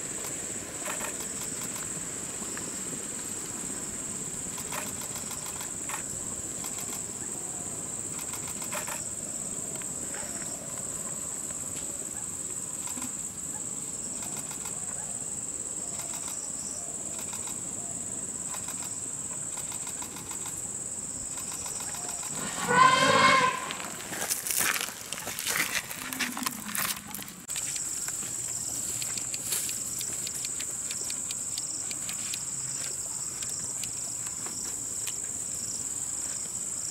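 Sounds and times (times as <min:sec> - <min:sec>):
high-pitched insect drone: 0:18.4 - 0:34.7
elephant trumpeting: 0:22.3 - 0:24.1.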